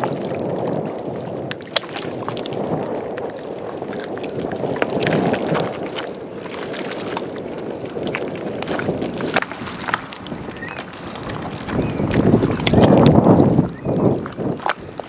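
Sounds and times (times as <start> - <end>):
wind rumbling on microphone: 0.0 - 15.0
wet mud squelching: 4.4 - 15.0.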